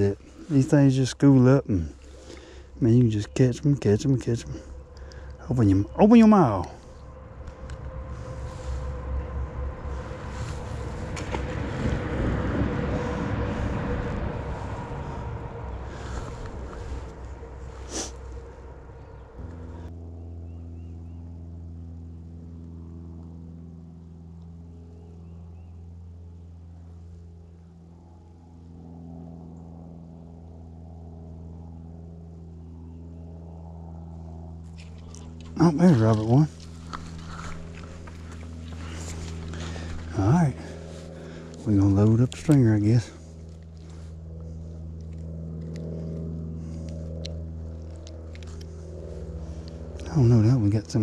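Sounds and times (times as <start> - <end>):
engine hum: 0.0 - 51.0
wind rumble on microphone: 6.8 - 17.8.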